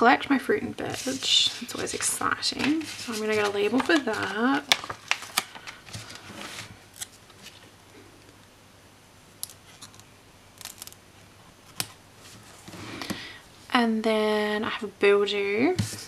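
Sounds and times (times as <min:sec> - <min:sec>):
paper rustling: 0:00.9 - 0:07.7
sticker peeling: 0:10.6 - 0:11.0.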